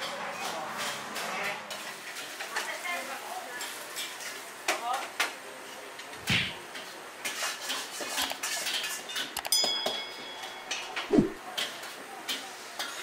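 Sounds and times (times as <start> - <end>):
dishes and pans clinking: 6.7 - 13.0.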